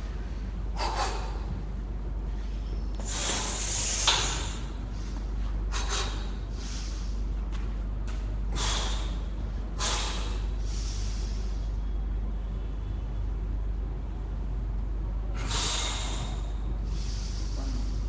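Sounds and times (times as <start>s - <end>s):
steady low hum: 0.0s - 18.0s
sharp breaths: 2.4s - 7.3s, 8.5s - 11.8s, 15.4s - 18.0s.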